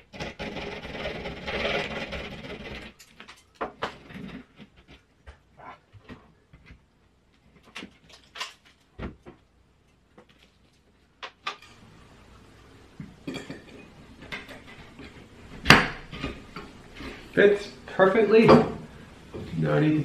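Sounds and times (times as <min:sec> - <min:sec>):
box scraping in ceiling hole: 0:00.0 - 0:03.0
faint steady hum: 0:02.5 - 0:20.0.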